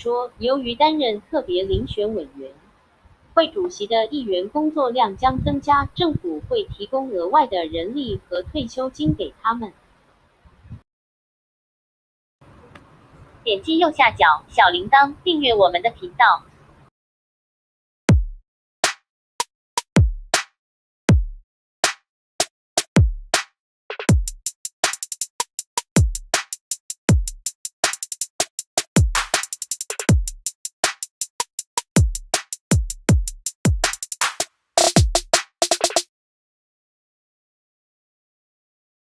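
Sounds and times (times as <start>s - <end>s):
drum machine beat: 18.1s - 18.4s, 19.8s - 20.5s, 21.1s - 21.4s, 22.8s - 36.1s.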